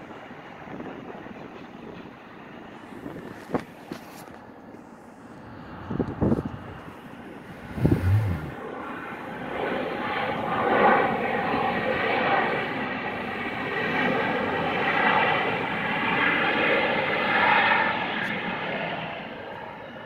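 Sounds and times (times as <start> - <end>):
jet engines rushing: 4.8 - 19.9.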